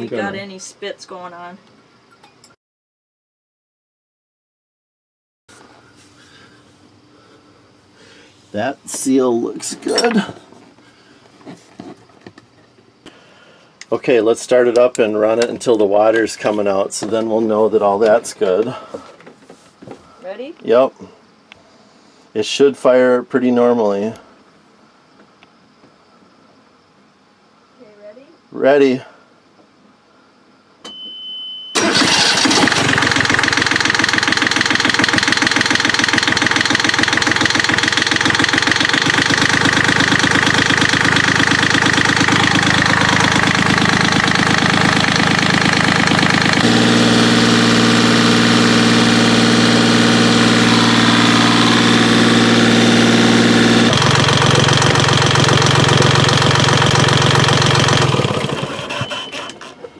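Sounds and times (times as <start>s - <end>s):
diesel engine cranking and idling: 31.8s - 59.9s.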